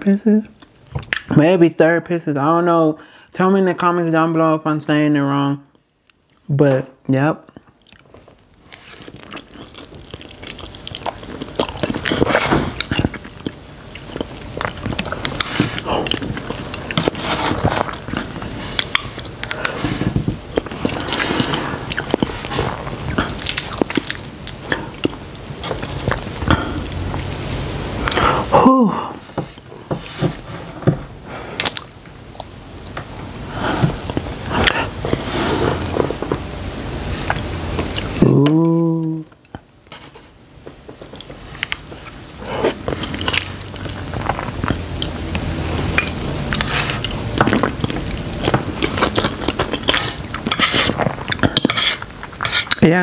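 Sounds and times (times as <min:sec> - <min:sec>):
wet chewing and mouth smacks: 0:05.8 - 0:06.5, 0:07.5 - 0:28.2, 0:31.5 - 0:33.0, 0:33.8 - 0:38.2, 0:40.9 - 0:52.8.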